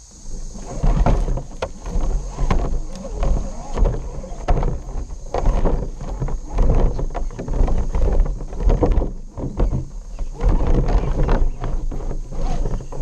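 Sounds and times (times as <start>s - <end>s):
tyres scraping over rocks: 0.1s - 13.0s.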